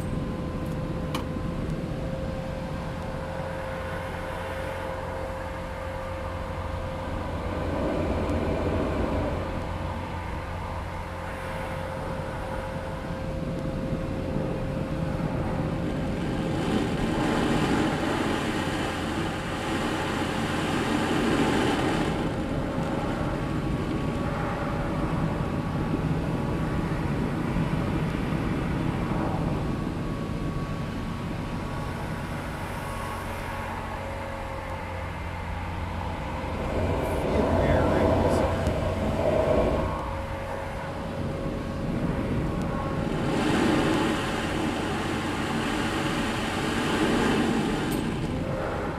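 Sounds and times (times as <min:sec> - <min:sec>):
muffled leaf blower running: 0:32.7 - 0:48.9.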